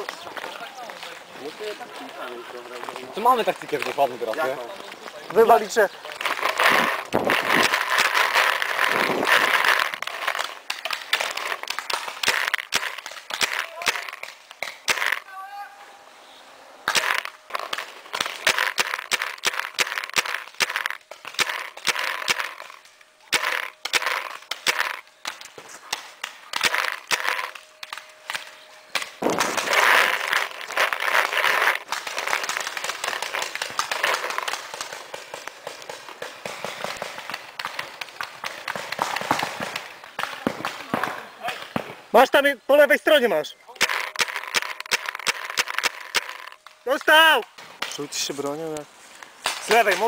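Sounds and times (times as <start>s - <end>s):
paintball markers firing: 5.3s - 15.3s, 16.9s - 42.0s, 43.7s - 48.1s.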